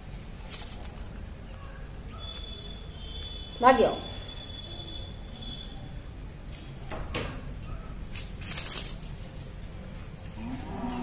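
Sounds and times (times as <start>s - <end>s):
plant stalks rustling swishes: 0.0s - 1.2s, 8.0s - 11.0s.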